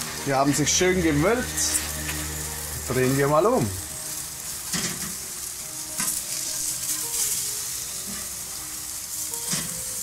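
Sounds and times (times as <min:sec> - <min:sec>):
meat sizzling on grill: 0:00.0 - 0:10.0
spatula scraping grill grate: 0:00.3 - 0:05.2, 0:06.0 - 0:08.4.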